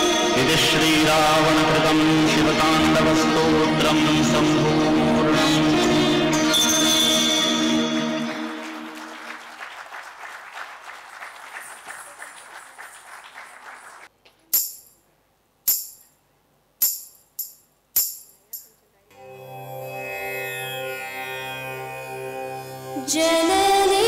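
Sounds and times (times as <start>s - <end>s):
sharp jingling metallic strikes: 14.5s - 15.0s, 15.6s - 16.2s, 16.8s - 18.8s.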